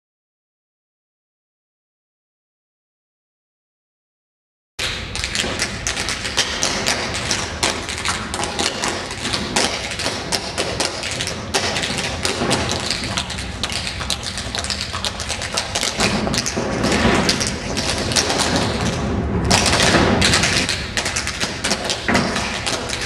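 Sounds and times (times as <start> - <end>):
tap shoes on tiled floor: 5.2 - 23.0.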